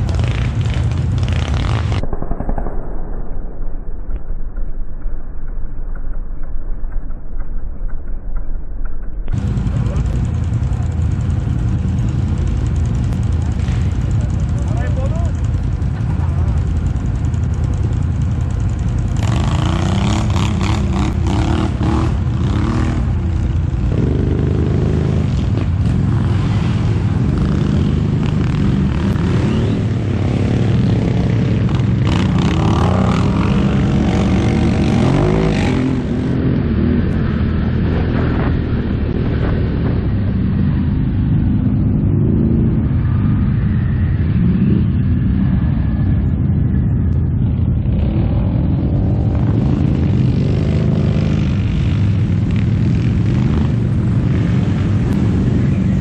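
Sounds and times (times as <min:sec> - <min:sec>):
distant quad engines: 0:00.0 - 0:03.2, 0:04.0 - 0:56.0
rough crackling noise: 0:00.0 - 0:56.0
quad engine revving up close: 0:18.7 - 0:40.0.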